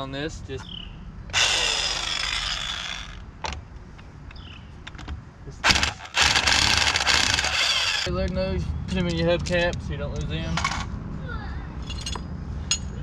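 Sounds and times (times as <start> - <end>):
impact wrench bursts: 1.3 - 3.2, 5.6 - 8.1.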